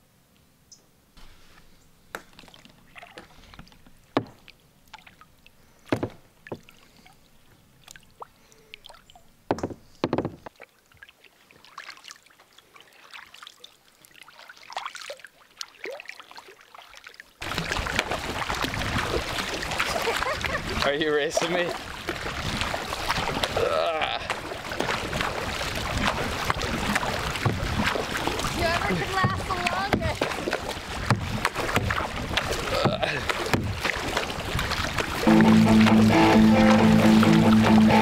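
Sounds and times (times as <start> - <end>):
paddle strokes splashing water: 1.2 - 9.0, 9.6 - 38.0
paddle knocking against kayak: 4.1 - 4.5, 5.9 - 6.7, 9.5 - 10.5, 24.3 - 38.0.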